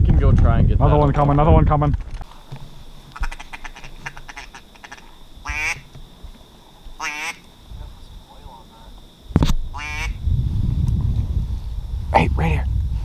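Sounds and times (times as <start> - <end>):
duck quacking: 3.1 - 5.8, 7.0 - 7.4, 9.7 - 10.2.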